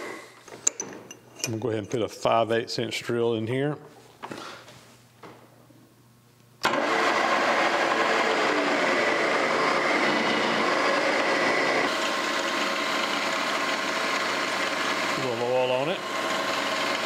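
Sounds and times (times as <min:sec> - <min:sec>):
drill whining into steel: 0:06.6 - 0:17.0.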